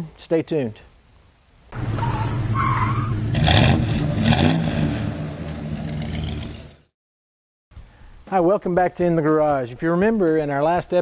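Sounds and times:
car engine revving: 1.8s - 6.9s
tyre screech: 1.9s - 3.2s.

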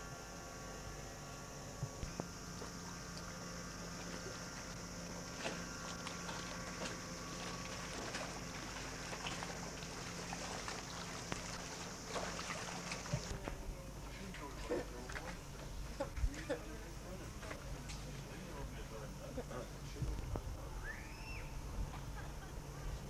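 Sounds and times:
boat engine humming: 0.0s - 23.0s
water splashes: 3.9s - 13.6s, 14.2s - 15.6s.

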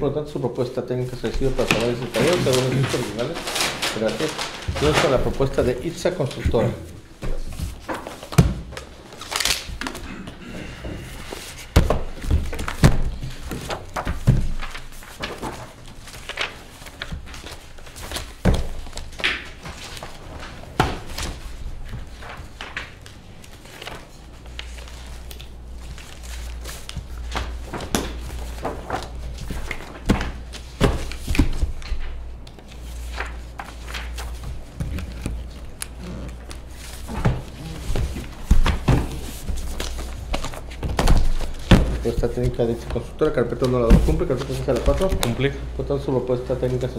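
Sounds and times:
paper rustling: 1.1s - 10.0s, 10.6s - 46.9s
paper folders knocking on table: 6.3s - 8.9s, 11.0s - 15.8s, 16.4s - 23.1s, 26.9s - 32.2s, 36.8s - 45.4s.

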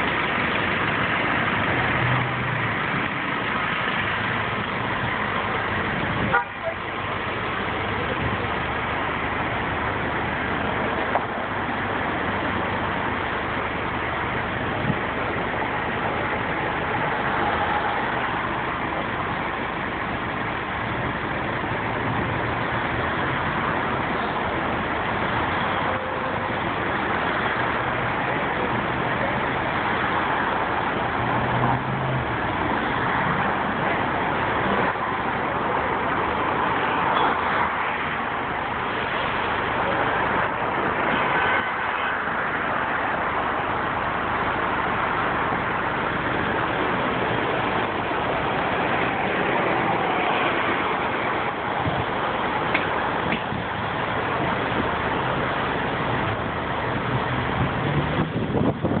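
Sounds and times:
street traffic: 0.0s - 59.0s
engine running close by: 42.5s - 59.0s.

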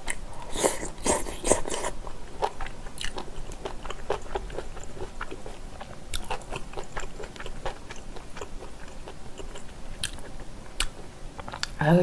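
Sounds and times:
person chewing with mouth clicks: 0.0s - 11.8s.

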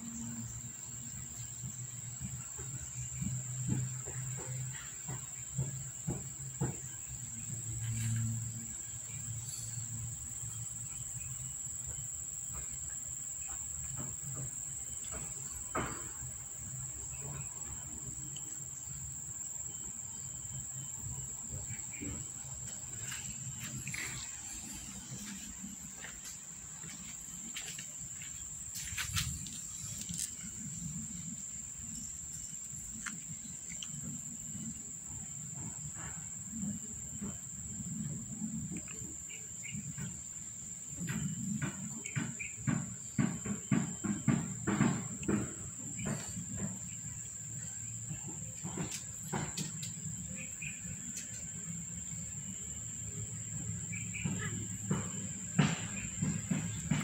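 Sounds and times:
rustling and light knocks: 21.1s - 34.7s, 41.0s - 52.6s.

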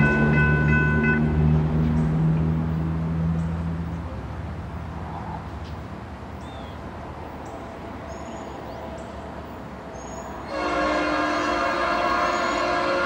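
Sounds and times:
small birds chirping: 5.1s - 10.4s.

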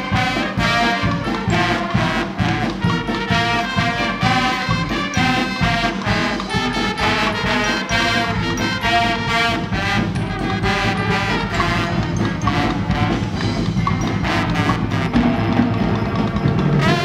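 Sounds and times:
carnival brass band playing: 0.0s - 17.0s.

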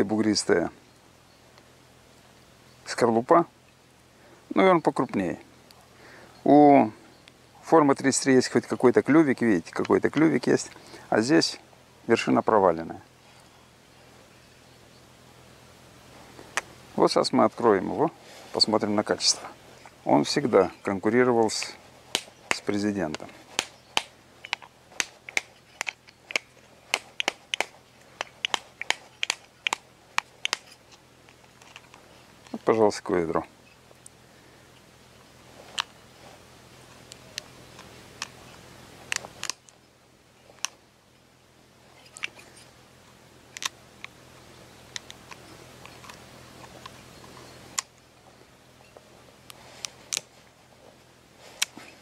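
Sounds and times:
walnut shell cracking: 21.5s - 32.6s.

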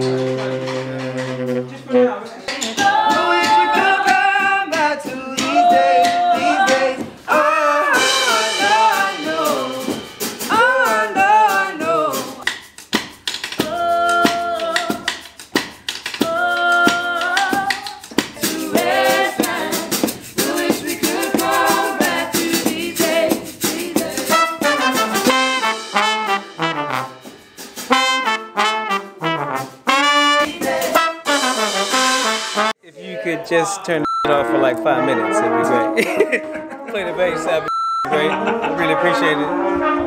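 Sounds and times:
trumpet and trombone playing: 0.0s - 4.5s, 5.4s - 12.4s, 18.4s - 32.8s, 34.3s - 40.0s
drum kit: 0.0s - 32.8s
people singing: 2.4s - 12.4s, 16.2s - 25.4s, 30.3s - 31.4s, 32.9s - 39.0s.

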